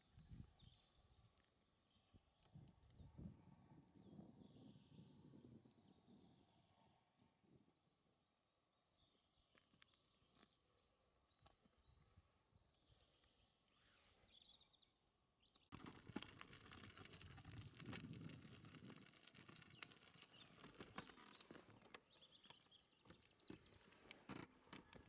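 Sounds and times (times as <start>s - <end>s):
gravel crunching on dirt track: 15.7s - 25.0s.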